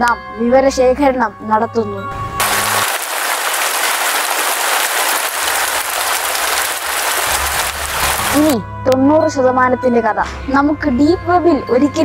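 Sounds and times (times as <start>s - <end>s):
heavy rain on wet street: 2.4s - 8.6s.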